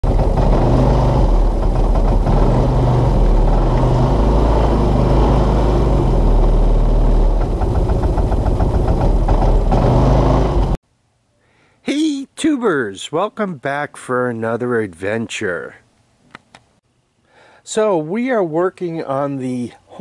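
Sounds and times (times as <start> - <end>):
rapid even ticking: 0.0 - 10.4
utility vehicle engine running: 0.0 - 10.8.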